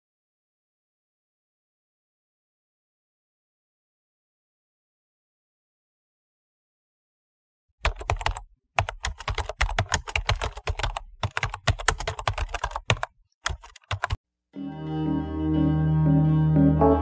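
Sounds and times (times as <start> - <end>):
keyboard typing clicks: 7.8 - 14.2
music: 14.6 - 17.0.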